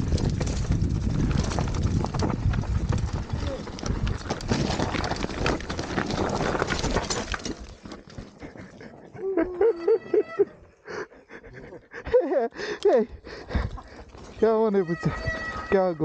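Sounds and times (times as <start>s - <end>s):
bike rolling over rough trail: 0.0s - 9.2s, 13.5s - 16.0s
animal call: 9.2s - 10.6s, 14.8s - 16.0s.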